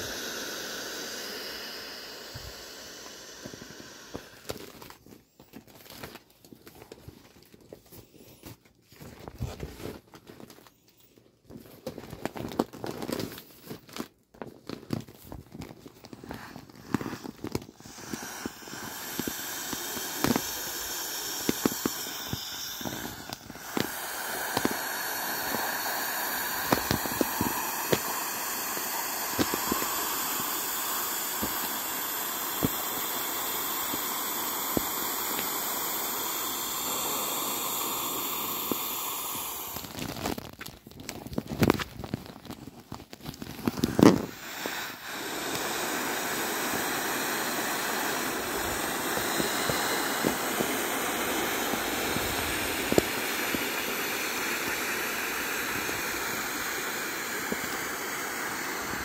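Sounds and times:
air hissing out of valve: 0:00.0 - 0:05.0, 0:16.1 - 0:40.4, 0:43.5 - 0:59.0
vinyl crinkling: 0:04.4 - 0:17.8, 0:39.8 - 0:44.3.

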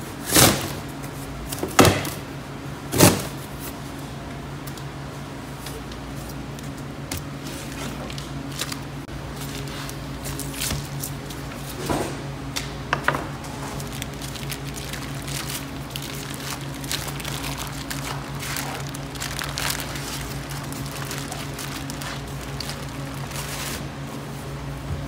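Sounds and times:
steady low hum: 0:00.0 - 0:25.0
plastic bag crinkling and rustling: 0:13.6 - 0:23.9.

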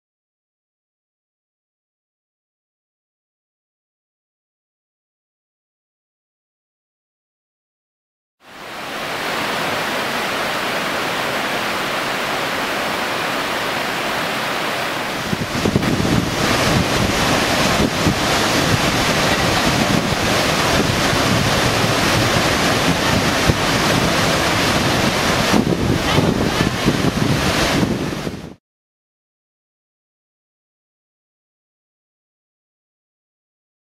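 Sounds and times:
waterfall rushing: 0:08.4 - 0:28.6
wind buffeting microphone: 0:15.0 - 0:28.6.

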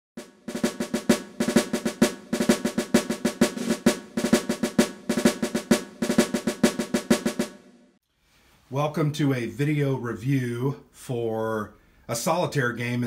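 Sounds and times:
fast drum rhythm: 0:00.2 - 0:07.8.

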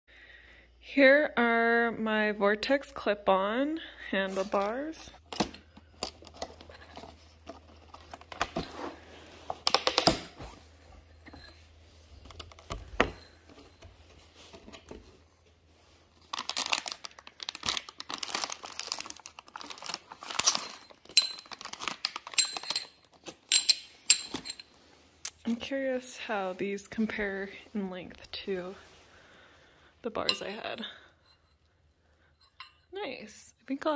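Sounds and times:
plastic packaging crinkling: 0:16.0 - 0:23.5.

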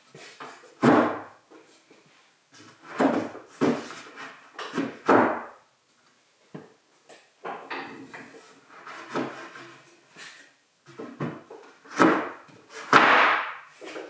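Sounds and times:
wooden tabletop scraping on wood: 0:08.0 - 0:10.4.

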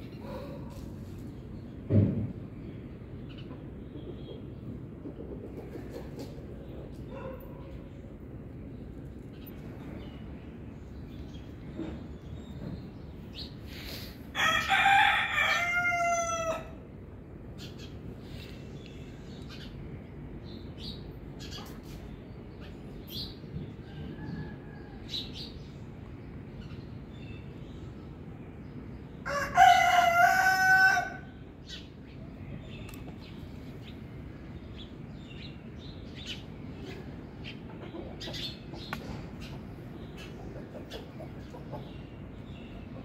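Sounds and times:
rooster crowing: 0:14.4 - 0:16.8, 0:29.2 - 0:31.3.

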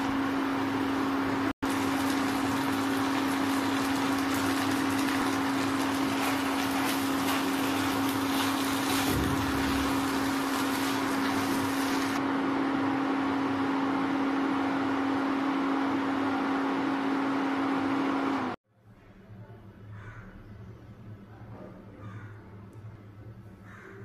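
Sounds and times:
cooktop electrical hum: 0:00.0 - 0:24.0
spatula scraping pan: 0:05.9 - 0:12.2.

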